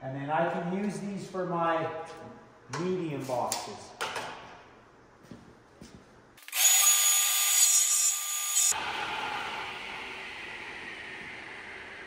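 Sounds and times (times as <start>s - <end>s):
table saw cutting plywood: 6.5s - 9.7s.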